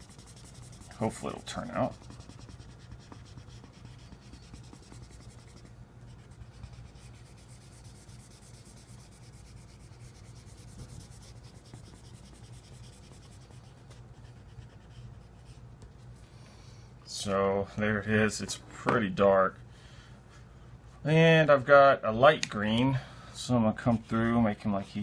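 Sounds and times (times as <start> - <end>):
marker rubbing on paper: 0.0 - 15.6.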